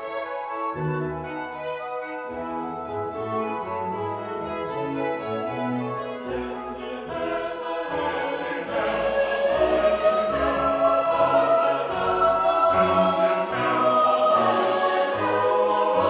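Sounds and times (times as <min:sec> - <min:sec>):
choir singing long held notes: 0:05.1 - 0:16.0.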